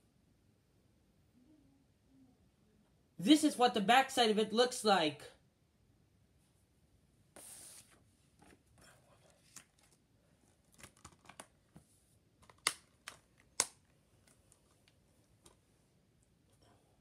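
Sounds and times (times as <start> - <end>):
paper card scraping on carpet: 7.4 - 8.0
packaging clicks and crinkles: 10.6 - 11.6, 12.4 - 15.6.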